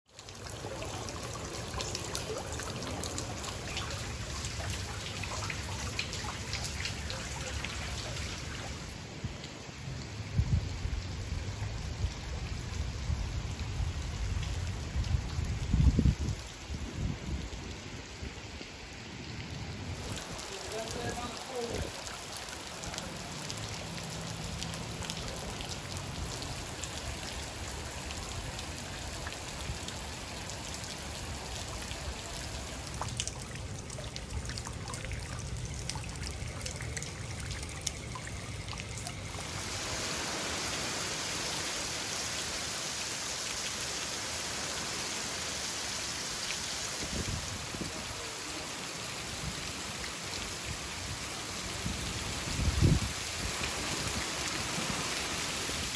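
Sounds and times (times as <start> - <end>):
rain falling on water: 0.0 - 55.9
water trickling: 0.1 - 16.7, 19.3 - 55.9.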